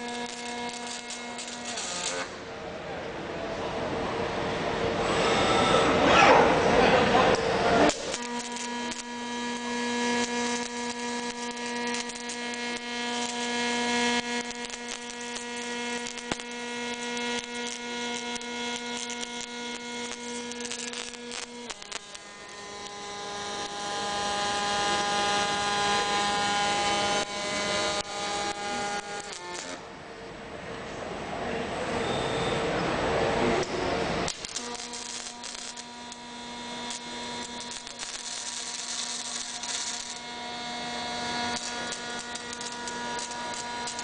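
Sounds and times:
welding arc crackling and humming: 0.0s - 2.6s, 4.3s - 29.9s, 33.0s - 44.0s.

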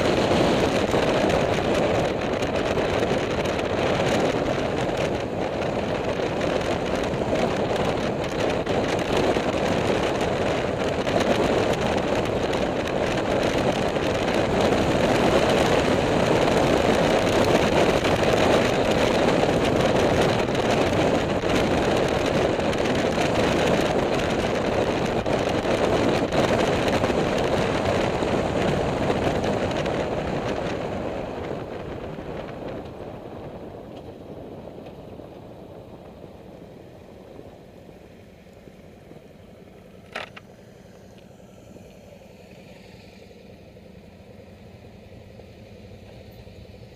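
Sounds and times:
wind buffeting microphone: 0.0s - 37.7s
motorcycle engine: 0.0s - 46.9s.

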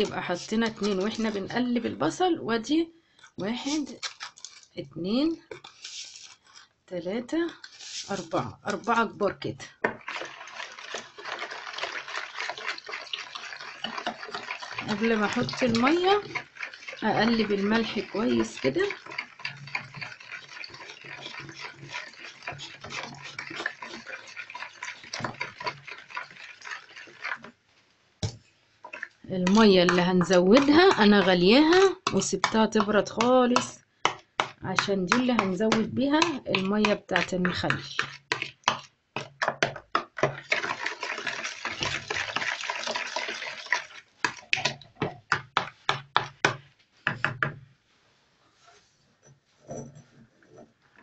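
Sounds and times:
liquid swishing: 0.0s - 2.0s, 7.6s - 27.8s, 28.6s - 33.8s, 34.4s - 39.3s, 40.2s - 46.0s
spoon stirring in plastic bowl: 0.0s - 27.6s, 28.2s - 47.6s.

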